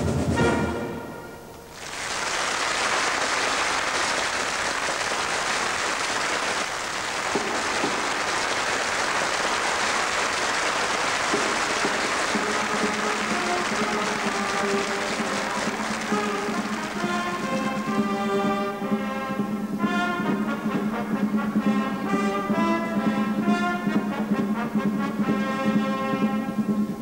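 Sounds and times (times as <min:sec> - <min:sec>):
drum and brass band music: 0:00.0 - 0:27.0
audience applauding: 0:01.7 - 0:18.8.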